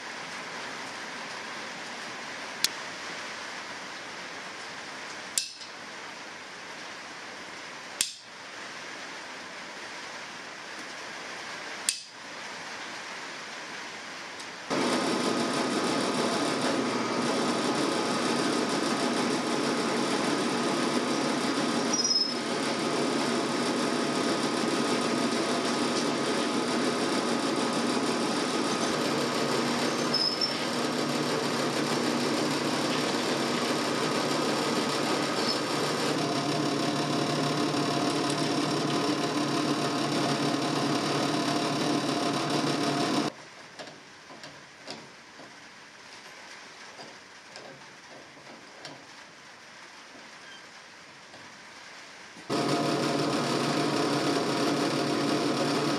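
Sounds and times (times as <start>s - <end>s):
drill press drilling metal: 14.7s - 43.3s, 52.5s - 55.9s
drill bit squeaks: 21.1s - 22.5s, 28.7s - 31.0s, 35.2s - 43.3s, 52.6s - 55.9s.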